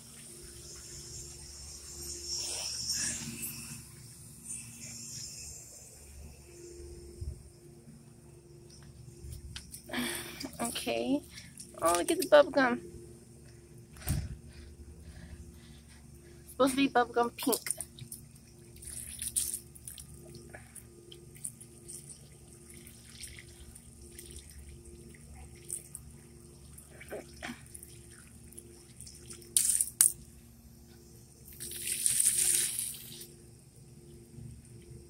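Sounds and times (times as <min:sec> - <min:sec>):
water trickling from hose into soil: 0:08.7 - 0:12.8, 0:15.2 - 0:30.4, 0:31.1 - 0:35.0.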